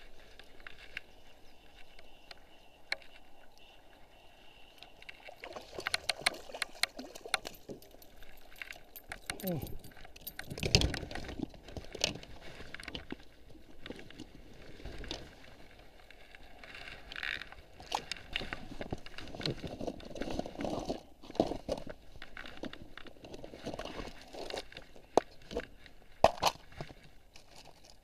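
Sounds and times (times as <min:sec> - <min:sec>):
rustling of clothing and gear: 0:05.6 - 0:28.0
handling clicks and knocks: 0:05.9 - 0:11.4.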